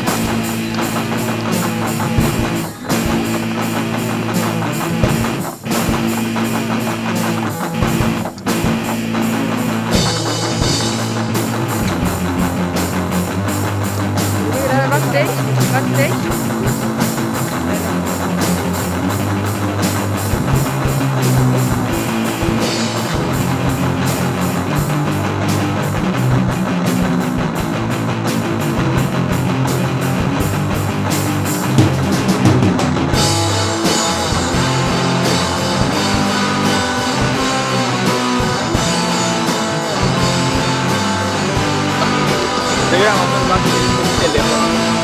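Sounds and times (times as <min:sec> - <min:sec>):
rock music with drums and guitar: 0:00.0 - 0:45.0.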